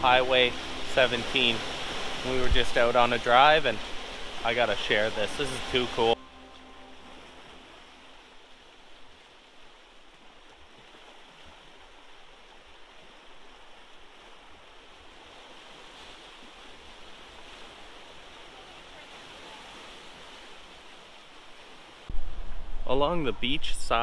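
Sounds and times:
small waves lapping on shore: 0:00.0 - 0:24.0.

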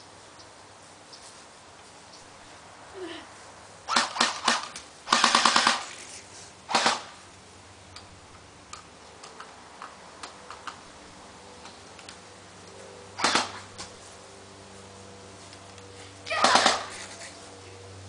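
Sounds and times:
airsoft gun shots: 0:03.9 - 0:05.9, 0:06.7 - 0:07.2, 0:13.2 - 0:13.7, 0:16.4 - 0:16.9.

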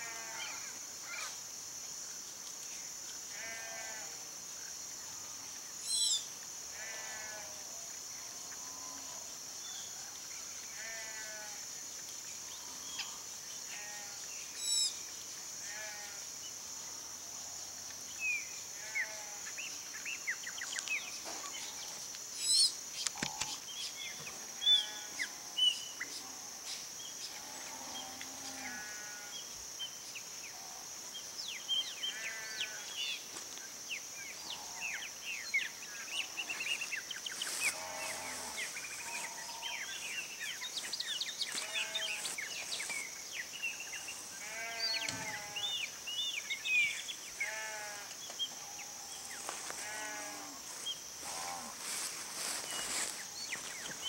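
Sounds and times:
songbirds chattering: 0:35.4 - 0:48.7, 0:51.8 - 0:54.0.

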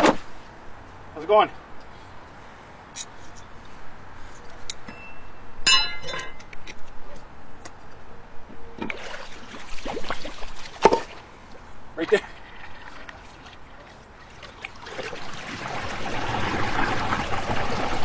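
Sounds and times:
sharp metal knock: 0:04.8 - 0:06.4
water splashing: 0:08.9 - 0:11.3, 0:12.0 - 0:18.0
water swirling down a drain: 0:12.1 - 0:18.0.

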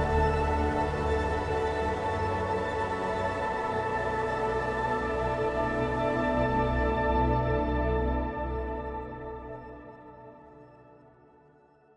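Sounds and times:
ambient music with held chords: 0:00.0 - 0:11.9.

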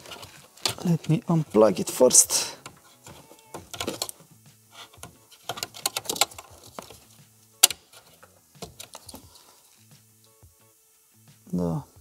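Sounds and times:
plastic connectors clicking and rattling: 0:02.6 - 0:04.2, 0:04.9 - 0:09.3.

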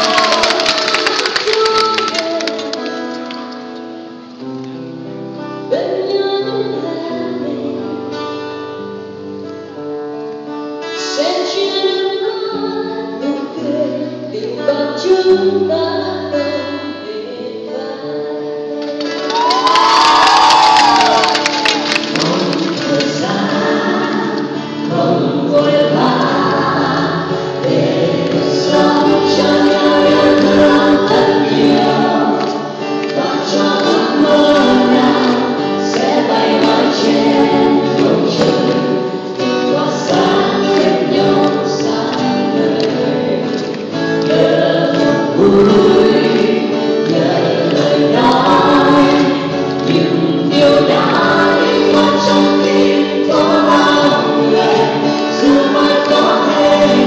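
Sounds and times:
group singing in harmony: 0:00.0 - 0:02.7, 0:20.0 - 0:57.0
acoustic guitars: 0:00.0 - 0:57.0.

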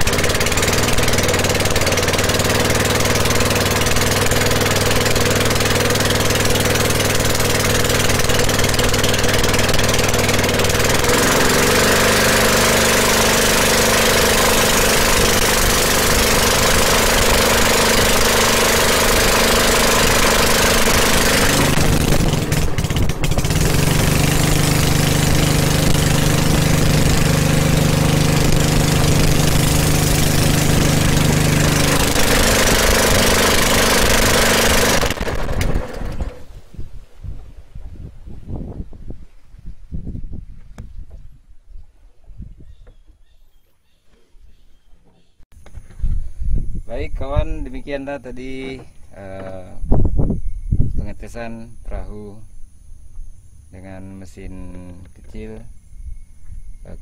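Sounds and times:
boat engine running: 0:00.0 - 0:36.6.

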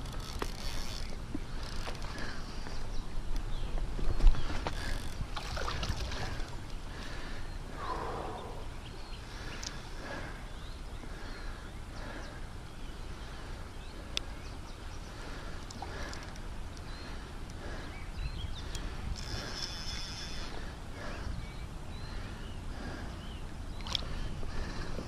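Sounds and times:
small birds chirping: 0:06.0 - 0:25.0
steady low rumble: 0:07.0 - 0:11.2.

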